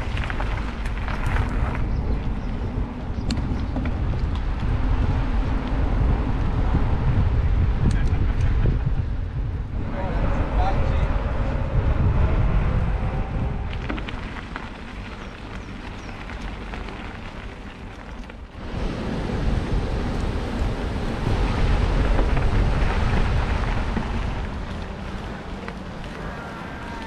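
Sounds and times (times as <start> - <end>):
bike clicks and rattles: 0.0 - 9.5, 13.6 - 18.6
wind buffeting microphone: 0.0 - 27.0.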